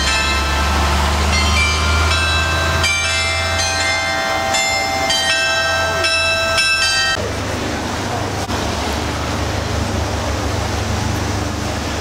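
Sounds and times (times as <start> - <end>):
bell-like chime melody: 0.0 - 7.2
bus engine low rumble: 0.0 - 12.0.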